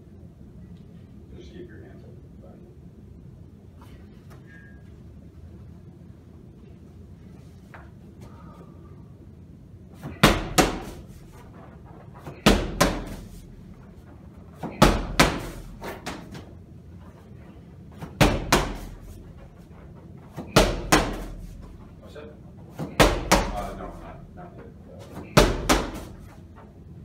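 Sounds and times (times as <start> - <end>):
medicine ball slamming: 10.0 - 11.1, 12.3 - 13.5, 14.6 - 16.5, 18.0 - 19.2, 20.4 - 21.7, 22.8 - 23.8, 25.2 - 26.3
ball bouncing thud: 25.2 - 26.2.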